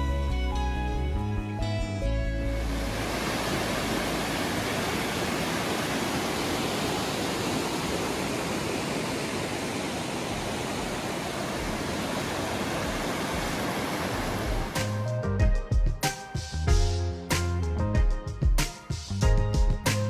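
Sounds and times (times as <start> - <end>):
river rushing over rocks: 2.6 - 14.8.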